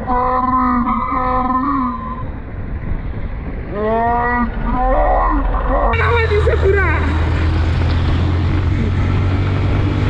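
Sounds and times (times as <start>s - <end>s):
low road rumble: 0.0s - 10.0s
motorcycle engine revving: 5.7s - 10.0s.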